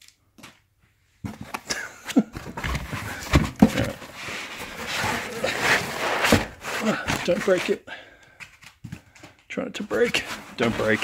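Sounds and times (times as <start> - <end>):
cloth bag rustling on foam: 9.9 - 11.0.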